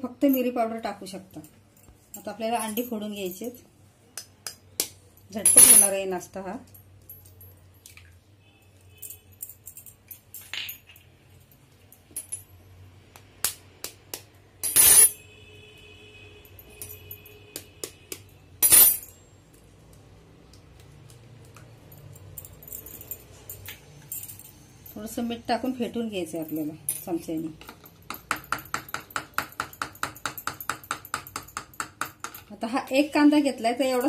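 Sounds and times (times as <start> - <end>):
shell clinking on bowl: 14.6 - 15.2, 18.6 - 19.1.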